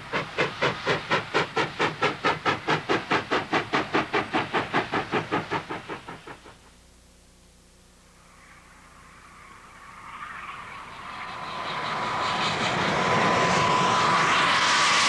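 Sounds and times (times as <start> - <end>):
steam locomotive exhaust chuffing: 0.0 - 6.7.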